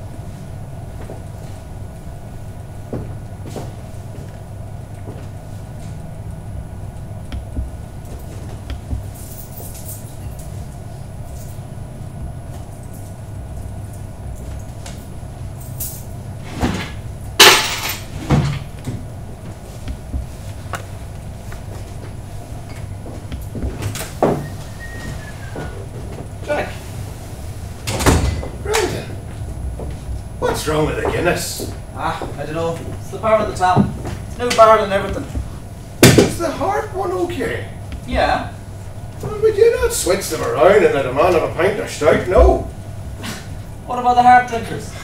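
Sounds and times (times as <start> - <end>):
bottles and glasses clattering: 17.4 - 18.7.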